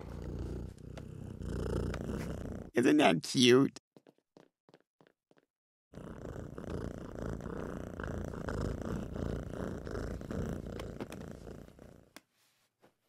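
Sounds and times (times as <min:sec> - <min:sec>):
cat purring: 0:00.0 - 0:02.8, 0:06.0 - 0:12.2.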